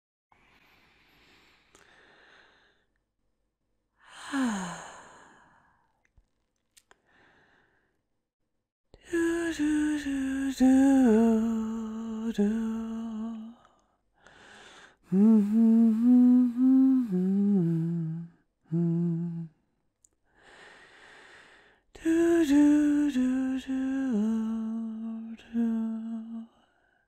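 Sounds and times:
soft breaths: 0.4 - 2.9
woman humming a lullaby: 15.1 - 19.5.

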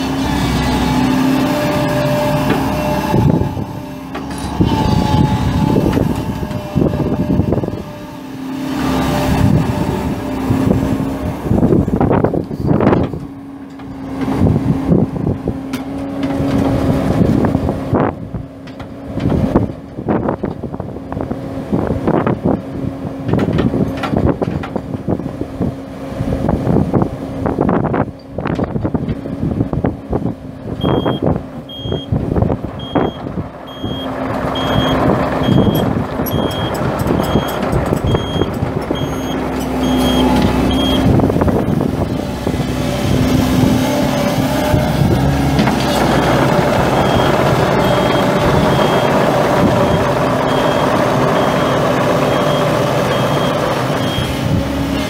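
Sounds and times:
diesel engine running under load: 0.0 - 55.0
travel alarm beeping: 30.8 - 32.1, 32.8 - 41.1, 49.8 - 54.4
machine knocks and clanks: 35.5 - 41.1.

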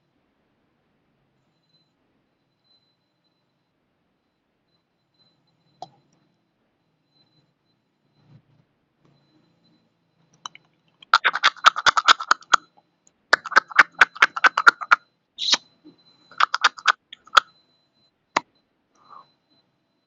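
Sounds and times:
sharp rapid clicks: 10.4 - 12.6, 13.3 - 15.6, 16.3 - 17.5.

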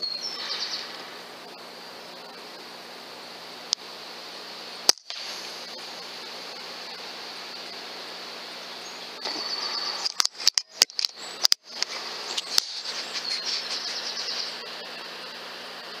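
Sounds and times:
small birds chirping: 0.0 - 1.0, 8.7 - 15.0
steady hiss: 0.0 - 16.0
sharp clicks: 4.9 - 5.3, 10.0 - 13.9.

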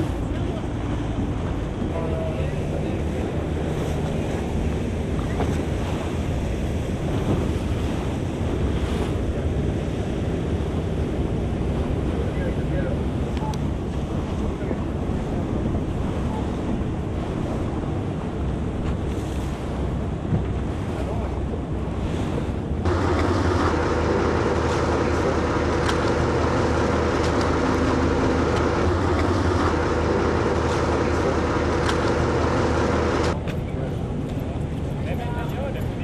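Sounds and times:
boat engine humming: 0.0 - 36.0
water lapping: 0.0 - 36.0.

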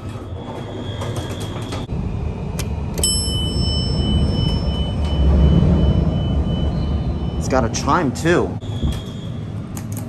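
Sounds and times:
low rumble: 1.8 - 9.6
elevator chime ringing: 3.0 - 9.4.

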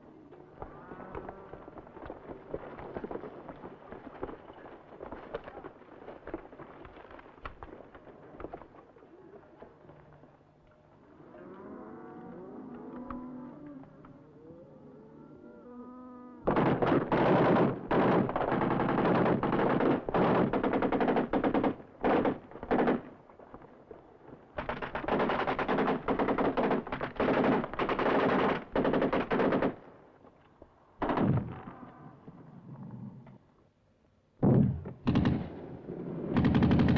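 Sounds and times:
machine-gun fire: 16.4 - 23.1, 24.6 - 29.8, 34.4 - 36.9.

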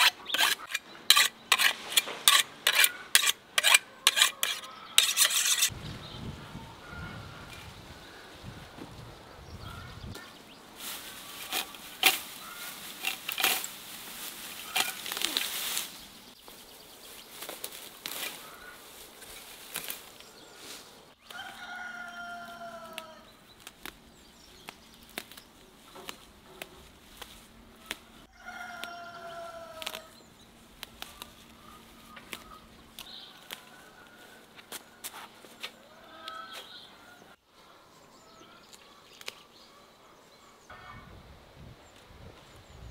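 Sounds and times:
leaves rustling: 5.1 - 36.0
stems snapping: 14.6 - 15.9, 22.8 - 29.0, 29.7 - 31.4, 32.1 - 33.7, 38.7 - 39.4
rooster crowing: 21.3 - 23.3, 28.3 - 30.1.

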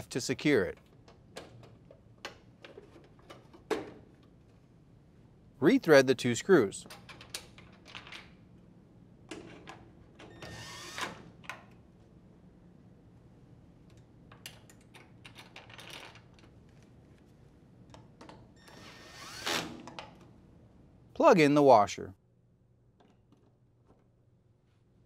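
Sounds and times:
cordless drill driving screws: 10.4 - 11.2, 18.7 - 19.8.

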